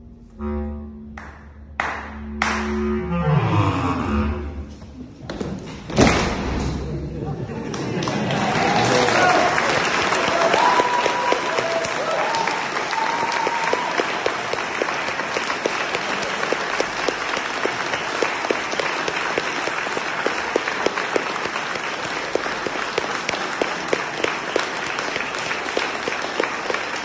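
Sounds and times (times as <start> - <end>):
audience applauding: 1.2 - 2.7, 7.5 - 27.0.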